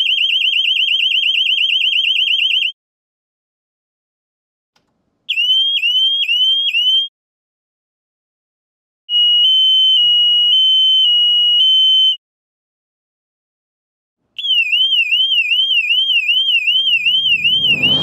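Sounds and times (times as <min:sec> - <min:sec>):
sweeping siren tone: 0:16.6 - 0:18.0
warbling alarm tone: 0:16.7 - 0:18.0.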